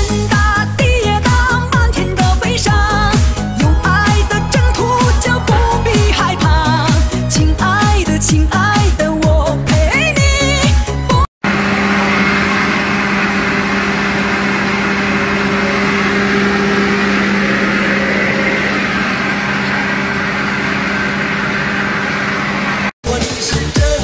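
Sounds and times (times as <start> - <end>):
tractor engine running: 0.0 - 9.6.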